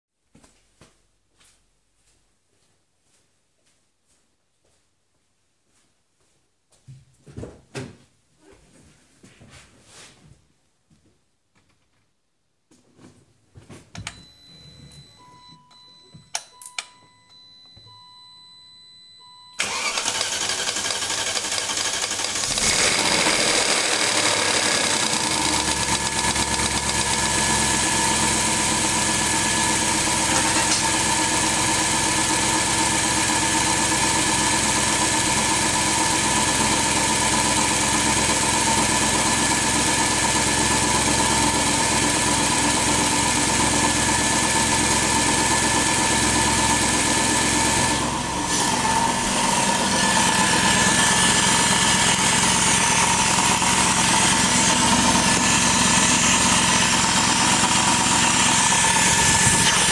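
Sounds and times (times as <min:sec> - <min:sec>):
short beeps: 0:14.0 - 0:19.6
clicks: 0:14.9 - 0:17.9
car engine cranking and idling: 0:19.2 - 0:59.9.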